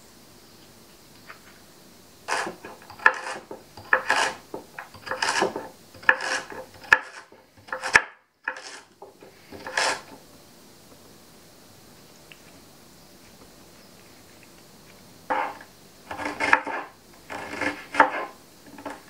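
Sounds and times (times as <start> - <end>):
knife slicing carrots: 2.3 - 10.1, 15.3 - 19.0.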